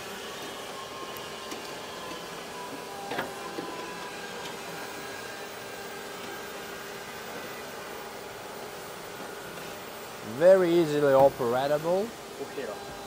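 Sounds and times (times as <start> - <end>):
factory machinery hum: 0.0 - 13.0
noisy hiss: 7.3 - 13.0.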